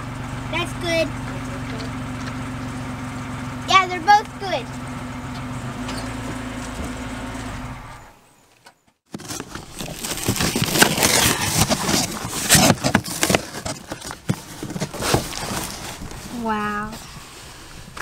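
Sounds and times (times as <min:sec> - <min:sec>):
minivan engine idling: 0:00.0 - 0:08.3
cardboard box tearing: 0:09.1 - 0:16.3.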